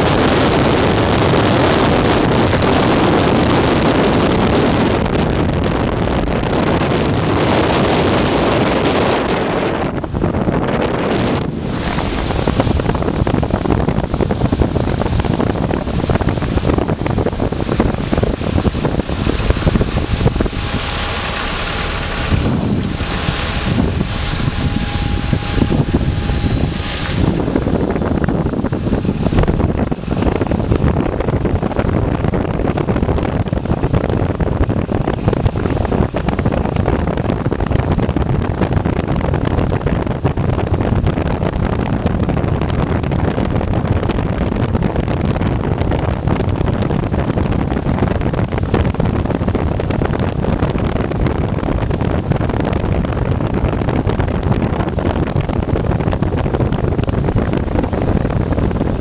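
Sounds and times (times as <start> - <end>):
car road and engine noise: 0.0 - 59.0
wind rushing on microphone: 0.0 - 59.0
faint high whine: 6.1 - 37.9.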